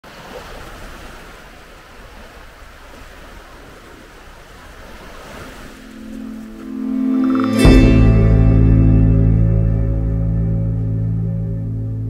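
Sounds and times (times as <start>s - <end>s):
wind: 0.0s - 12.0s
sea surf rushing: 0.1s - 11.2s
low held musical note: 5.8s - 12.0s.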